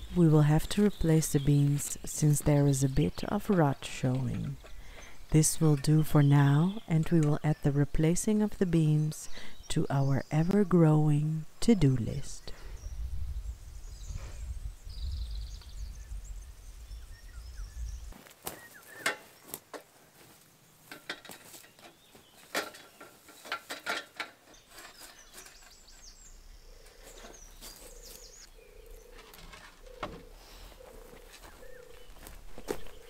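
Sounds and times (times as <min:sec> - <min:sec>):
birds chirping: 0:00.0 - 0:19.8, 0:20.6 - 0:33.0
sharp clicks and knocks: 0:20.9 - 0:26.1.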